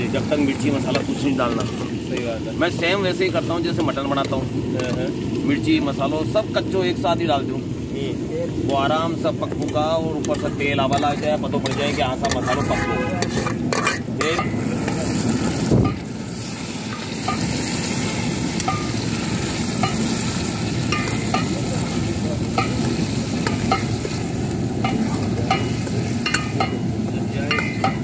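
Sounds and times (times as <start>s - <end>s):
chicken sizzling in hot oil: 0.0s - 28.0s
metal spoon clinking on pot: 18.6s - 19.0s, 20.9s - 21.6s, 22.5s - 24.0s, 24.8s - 26.9s, 27.5s - 28.0s.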